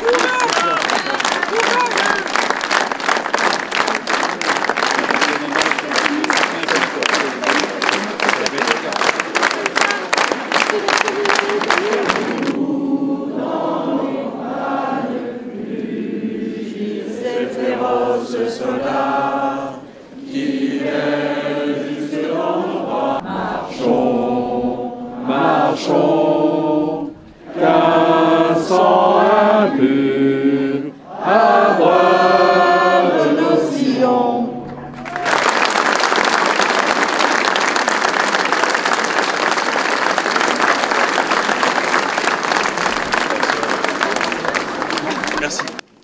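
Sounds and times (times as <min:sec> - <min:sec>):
crowd singing together: 0:09.2 - 0:37.4.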